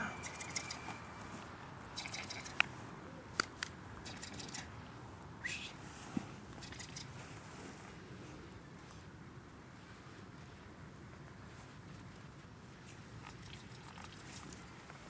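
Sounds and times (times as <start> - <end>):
sharp clicks: 0.2 - 1.0, 3.3 - 4.7
faint cloth rustling: 7.1 - 13.2.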